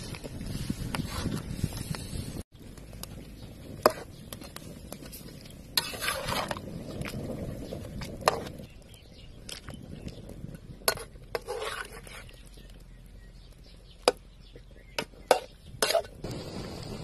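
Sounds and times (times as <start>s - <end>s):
utensil scraping cookware: 5.7s - 6.7s, 10.8s - 12.5s, 15.2s - 16.2s.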